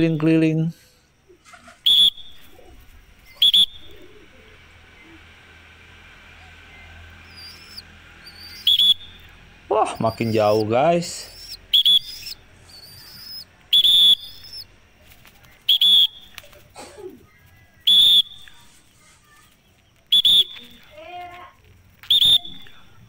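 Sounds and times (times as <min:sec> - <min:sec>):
faint bird chirps: 0:00.0 - 0:05.6, 0:06.2 - 0:23.0
person whistling high: 0:22.1 - 0:22.6.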